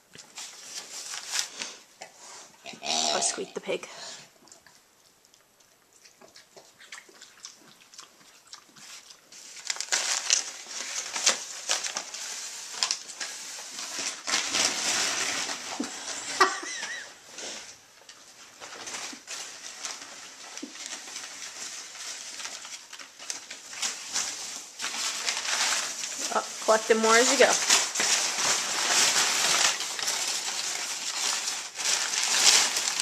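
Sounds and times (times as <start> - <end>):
packing paper rustling: 0.2 - 1.9, 8.8 - 33.0.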